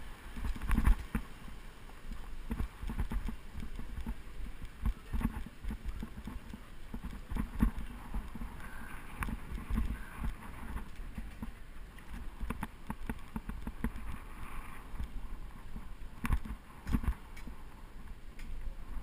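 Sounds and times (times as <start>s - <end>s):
bicycle knocks and rattles: 0.3s - 1.3s, 2.4s - 14.2s, 15.7s - 17.5s.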